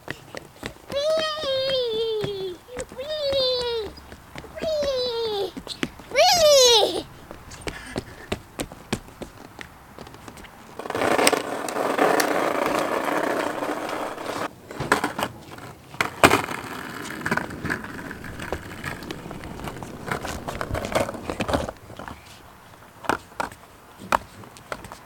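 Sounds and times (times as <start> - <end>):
skateboard clacking on wood: 0.0 - 25.0
skateboard wheels rolling on wood: 0.0 - 25.0.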